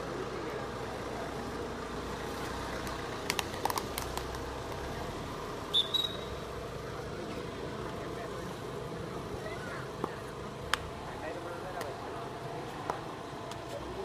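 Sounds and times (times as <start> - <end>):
spectators hubbub: 0.0 - 14.0
referee's whistle blast: 5.7 - 6.4.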